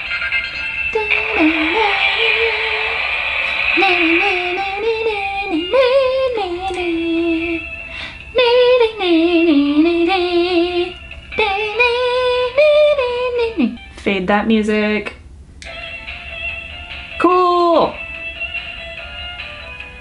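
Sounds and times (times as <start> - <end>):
toy playing high melody: 0.0 - 6.1, 7.2 - 8.3, 15.7 - 17.3, 18.0 - 20.0.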